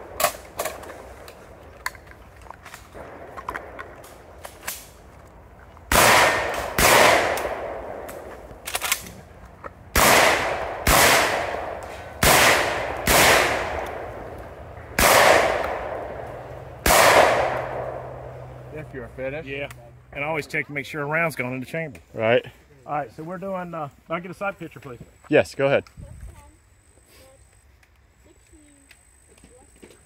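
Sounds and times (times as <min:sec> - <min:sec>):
shotgun shots with echo: 0:05.9 - 0:08.2, 0:10.0 - 0:14.3, 0:14.9 - 0:18.3.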